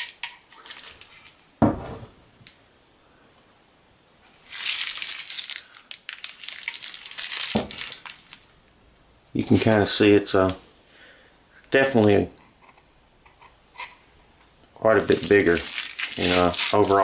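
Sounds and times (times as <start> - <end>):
plastic wrapping crinkling: 0.0 - 1.5, 4.2 - 8.6, 14.8 - 17.0.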